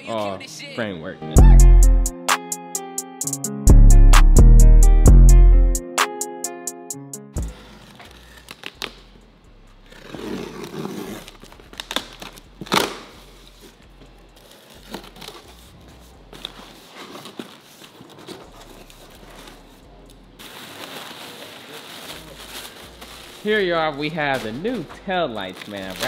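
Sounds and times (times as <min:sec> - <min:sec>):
packing tape tearing: 0:07.5 - 0:09.2, 0:09.9 - 0:13.8, 0:14.4 - 0:23.6, 0:24.2 - 0:26.0
plastic wrapping rustling: 0:07.5 - 0:09.2, 0:09.9 - 0:26.0.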